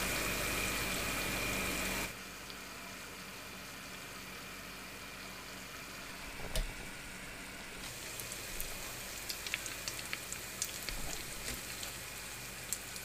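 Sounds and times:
dough deep-frying in oil: 0:00.0 - 0:13.0
oil popping and crackling: 0:07.8 - 0:13.0.

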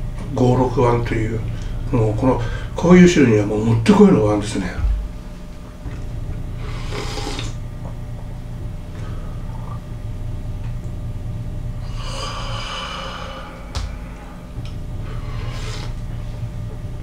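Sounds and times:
person slurping broth: 0:06.6 - 0:07.6, 0:15.2 - 0:16.0.

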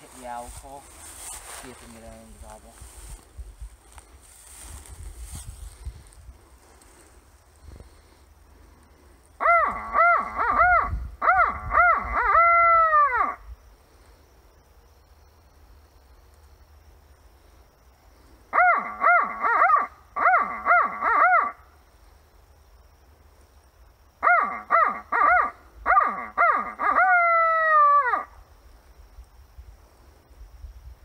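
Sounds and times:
owl call hoots: 0:09.4 - 0:13.5, 0:18.5 - 0:21.6, 0:24.2 - 0:28.4.

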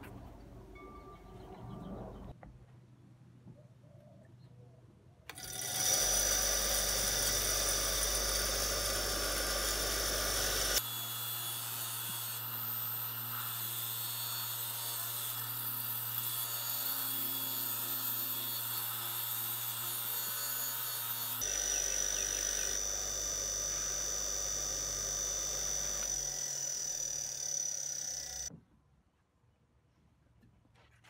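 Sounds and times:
bench grinder motor hum: 0:05.3 - 0:28.5.

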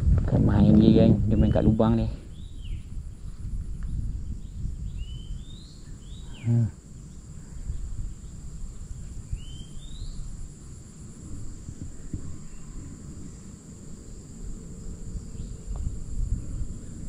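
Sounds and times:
insects shrilling: 0:00.6 - 0:17.0
bird chirping: 0:00.8 - 0:10.4, 0:11.9 - 0:13.6
loud low hum: 0:11.2 - 0:17.0.

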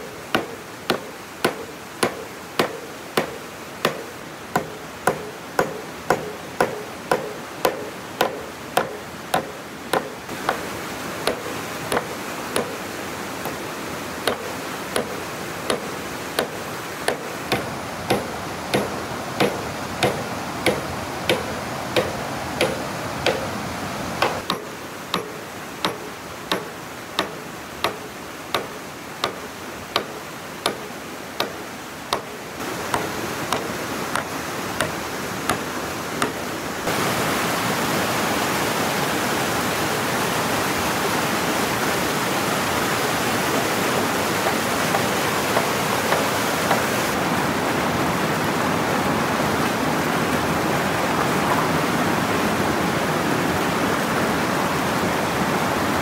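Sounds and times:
steady hiss: 0:00.0 - 0:47.2
hand tool striking wood: 0:00.3 - 0:12.8, 0:13.4 - 0:13.6, 0:14.2 - 0:23.6, 0:24.2 - 0:36.5, 0:44.4 - 0:46.9.

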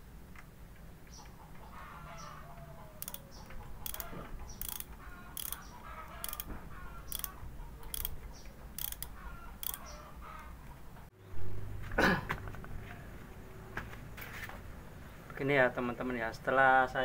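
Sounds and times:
hand tool metallic clicks: 0:03.0 - 0:06.5, 0:07.1 - 0:09.9.

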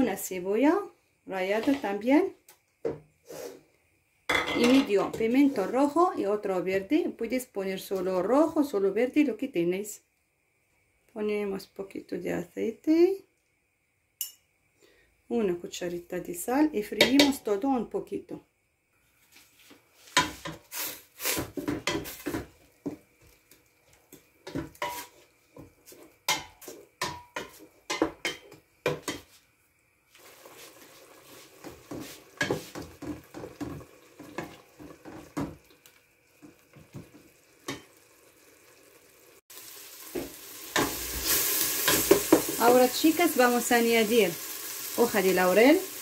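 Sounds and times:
wooden spoon scraping a metal pot: 0:24.5 - 0:28.0, 0:30.4 - 0:35.5
vegetables frying in oil: 0:29.8 - 0:46.0.

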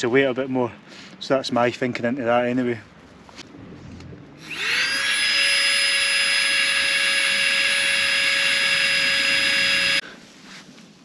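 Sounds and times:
electric air pump whining: 0:04.4 - 0:10.0.

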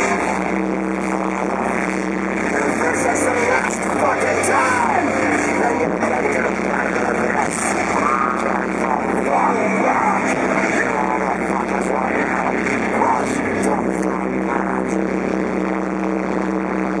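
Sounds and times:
metal band playing live: 0:00.0 - 0:15.3
vocals: 0:00.0 - 0:17.0.

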